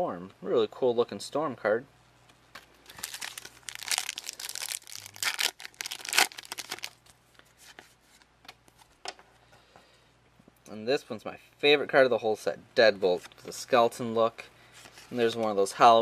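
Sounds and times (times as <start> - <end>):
cards being handled: 2.5 - 9.2
wrapper tearing and crinkling: 2.8 - 7.2.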